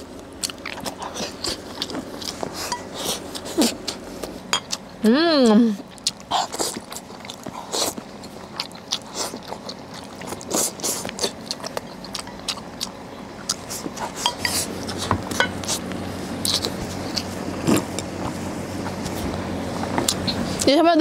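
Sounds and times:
low steady hum: 0.0 - 21.0
chopsticks scraping bowls: 13.5 - 18.0.

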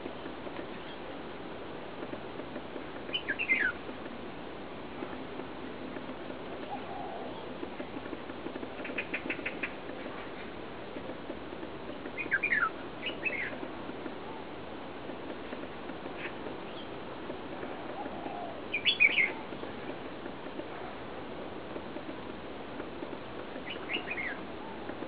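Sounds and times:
bird chirping: 3.1 - 3.8, 11.9 - 13.6, 18.3 - 19.4, 23.6 - 24.4.

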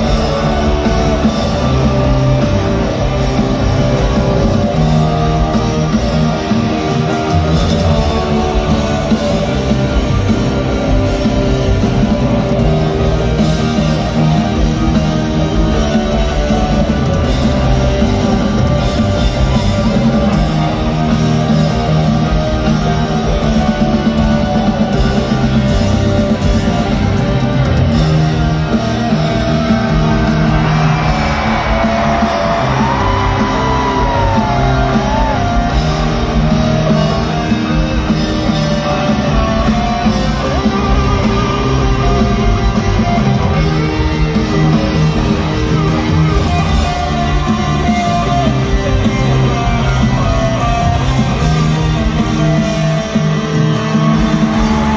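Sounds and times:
electric guitar: 0.0 - 54.9
live rock band: 0.0 - 54.9.

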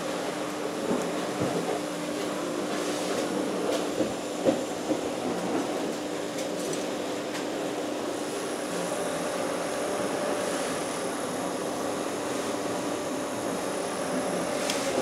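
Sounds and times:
forced air rushing through pipe: 8.2 - 15.0.

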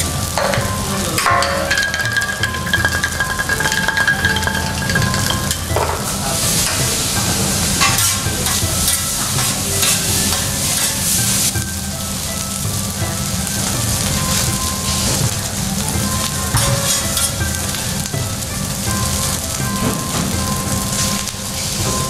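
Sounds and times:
rice sizzling on a griddle: 0.0 - 22.0
spatulas scraping metal plate: 0.2 - 11.7, 14.4 - 17.9.

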